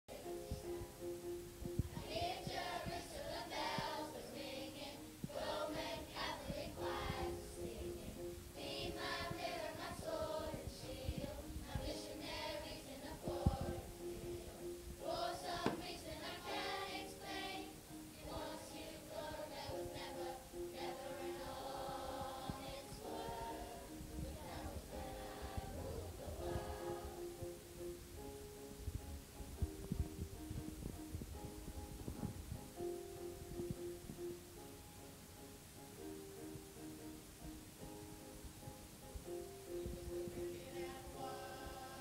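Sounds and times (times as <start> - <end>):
children singing: 1.9 - 27.4, 40.4 - 42.0
sharp knocks: 15.6 - 15.9.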